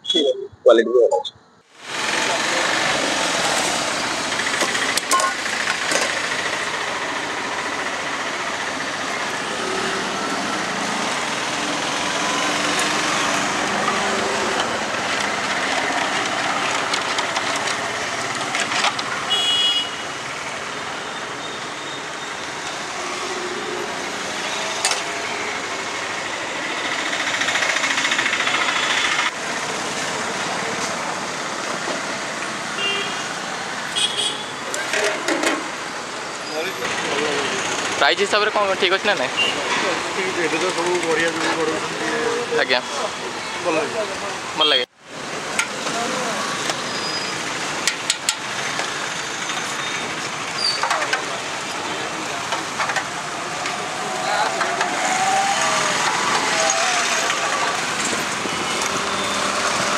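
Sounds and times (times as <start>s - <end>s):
street traffic: 0.0s - 59.9s.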